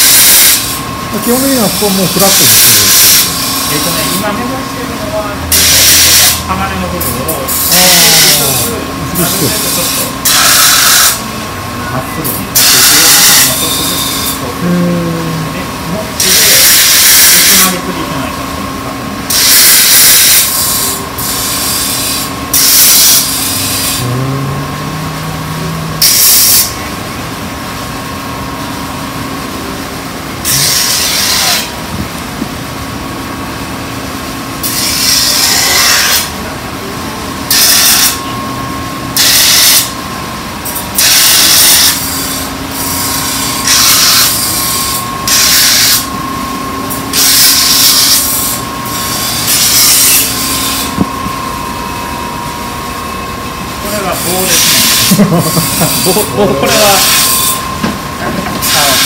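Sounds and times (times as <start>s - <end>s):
knife grinding on sharpening wheel: 0.0s - 4.3s, 5.5s - 11.2s, 12.6s - 14.5s, 16.2s - 17.7s, 19.3s - 26.8s, 30.4s - 31.8s, 34.6s - 36.3s, 40.6s - 46.1s, 46.9s - 51.0s, 54.1s - 57.8s
wheel motor humming: 23.2s - 30.6s.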